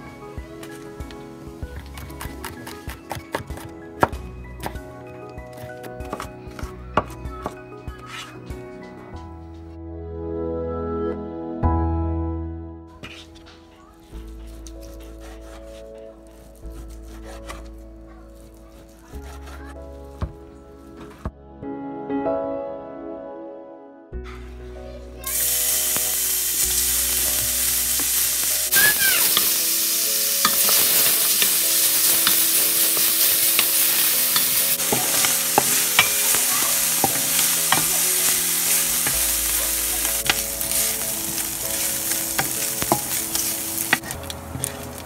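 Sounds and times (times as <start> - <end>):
wooden spoon stirring: 13.0 - 21.1, 25.7 - 45.0
bacon sizzling in a pot: 25.2 - 45.0.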